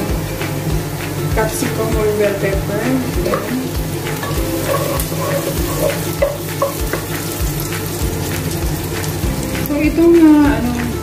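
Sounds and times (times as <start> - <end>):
vegetables sizzling in a pot: 0.0 - 11.0
wooden spatula scraping a pot: 4.2 - 8.0.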